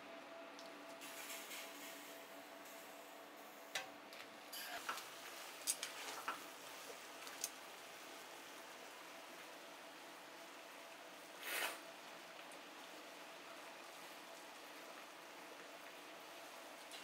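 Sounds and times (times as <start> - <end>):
faint kitchen hum: 0.0 - 17.0.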